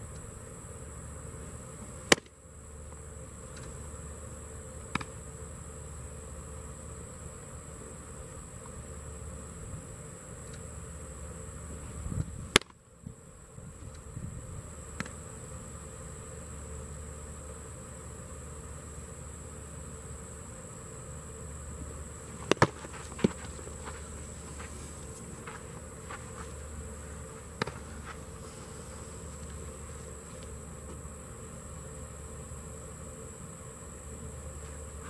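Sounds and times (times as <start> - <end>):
insects droning: 0.0 - 35.0
baseball smacking into a mitt: 2.0 - 2.4, 4.9 - 5.2, 12.5 - 12.8, 22.4 - 24.1, 27.5 - 28.2.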